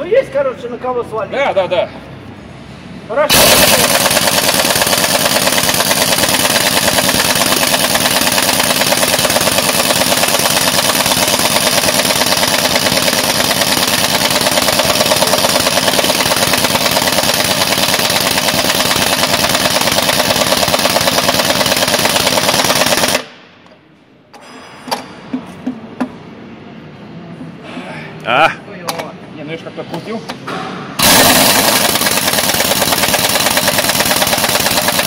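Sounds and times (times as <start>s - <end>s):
pneumatic impact wrench rattling: 3.3s - 23.3s, 31.0s - 35.0s.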